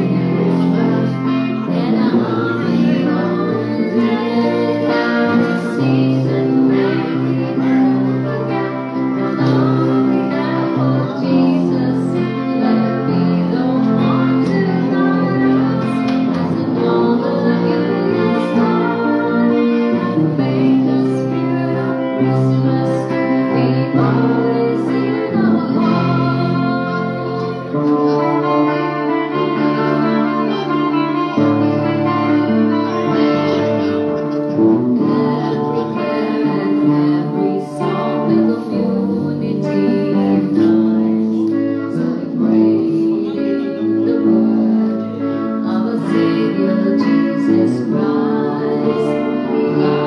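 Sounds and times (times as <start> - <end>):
acoustic guitar accompaniment: 0.0 - 50.0
electric guitar lead: 0.0 - 50.0.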